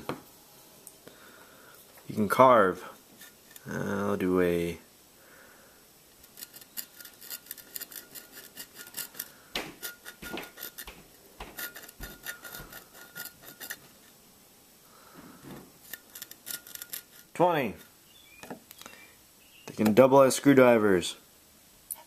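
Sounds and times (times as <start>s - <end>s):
knife scratching a bottle: 6.2s - 14.0s, 15.8s - 18.0s.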